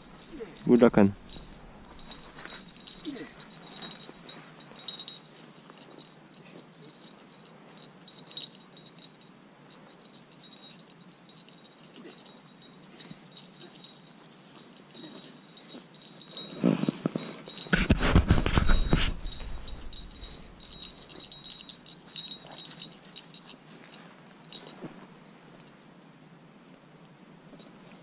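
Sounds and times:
faint high ringing: 0.0 - 25.9
camera handling rustling and bumping: 16.9 - 20.8.

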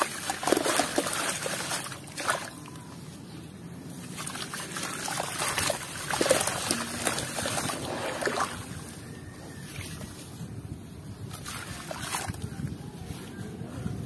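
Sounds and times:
water sloshing and dribbling: 0.0 - 2.9, 4.0 - 9.0, 11.3 - 12.7.

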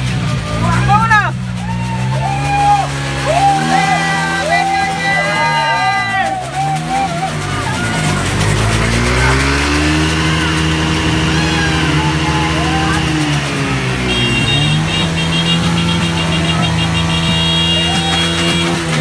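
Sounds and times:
vehicle engine revving: 0.0 - 19.0.

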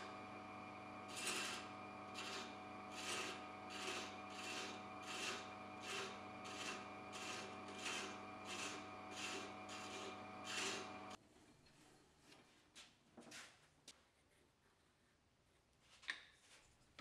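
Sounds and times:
lathe humming: 0.0 - 11.2
thread chaser rasping scrape: 1.0 - 11.2.

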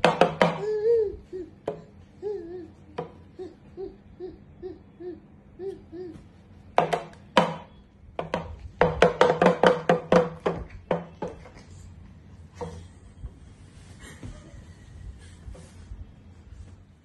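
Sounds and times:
soft hooting voice: 2.2 - 6.4.

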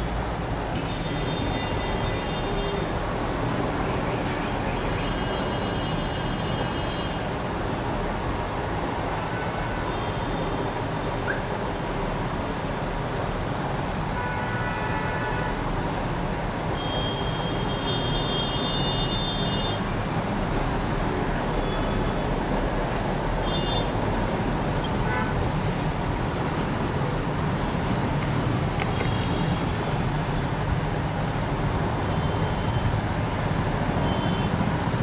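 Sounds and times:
road traffic: 0.0 - 35.0.

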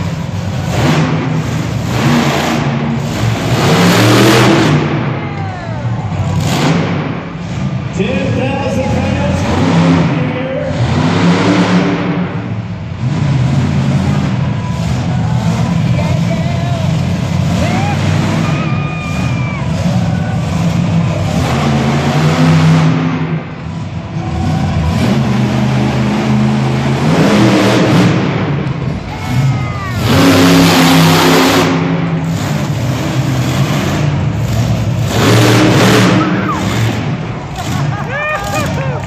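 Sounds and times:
monster truck engine revving: 0.0 - 39.0.

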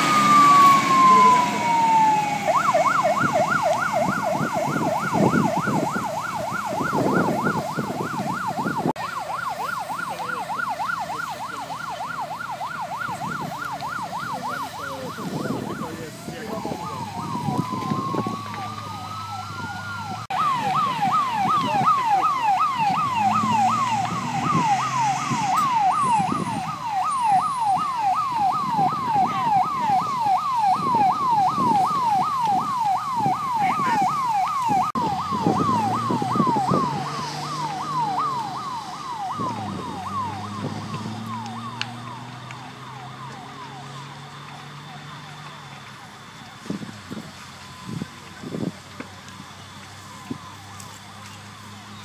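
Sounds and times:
fire engine siren wailing and yelping: 0.0 - 52.0
engine running: 35.0 - 52.0.

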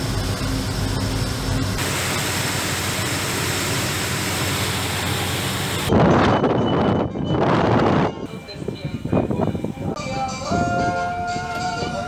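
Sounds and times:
water rushing along hull: 0.0 - 5.9
boat engine humming: 0.0 - 12.0.

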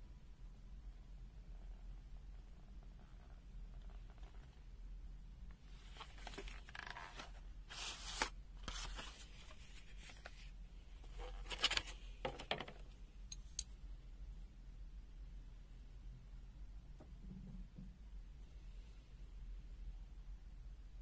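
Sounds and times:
plastic packaging rustling: 5.8 - 12.4.

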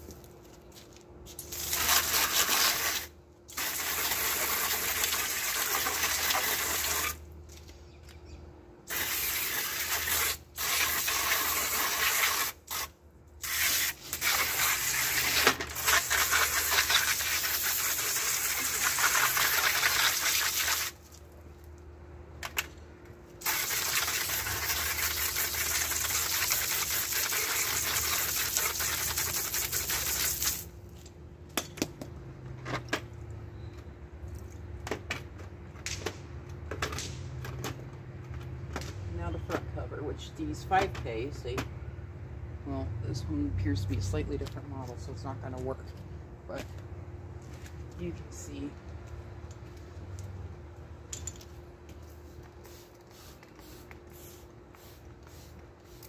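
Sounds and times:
hose spray hitting grille: 1.3 - 7.2, 8.9 - 21.0, 23.4 - 30.7.

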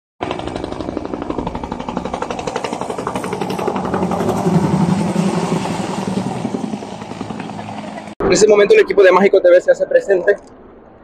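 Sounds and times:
helicopter rotor chopping: 0.2 - 9.0.

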